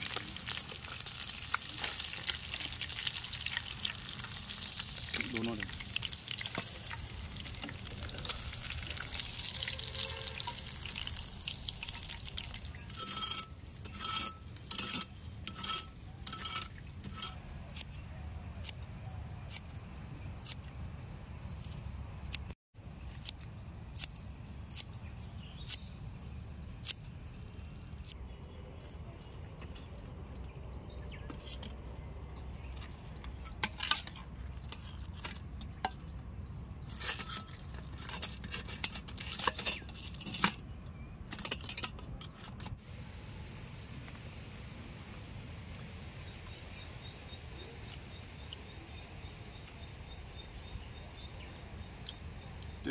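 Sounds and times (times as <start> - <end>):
fish sizzling in hot oil: 0.0 - 12.9.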